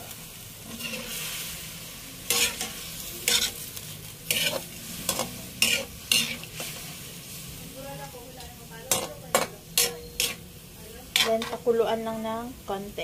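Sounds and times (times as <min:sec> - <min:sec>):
low steady sizzle: 0:00.0 - 0:13.0
metal spatula scraping a wok: 0:00.6 - 0:07.4, 0:08.9 - 0:10.5, 0:11.1 - 0:11.7.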